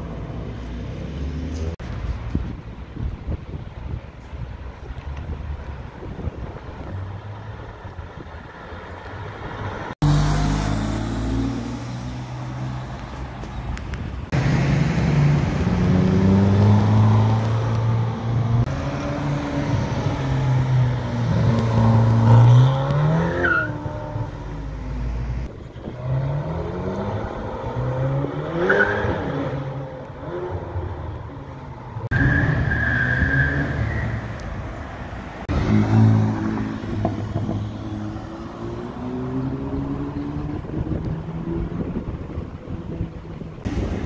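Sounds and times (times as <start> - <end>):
sports car engines accelerating: 14.3 - 31.6, 35.5 - 43.8.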